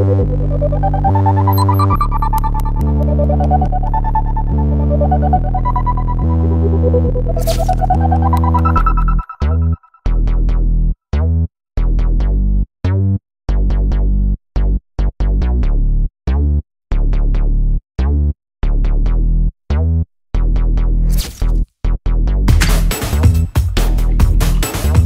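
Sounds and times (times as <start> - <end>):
electronic synth music: 0.3 - 9.8.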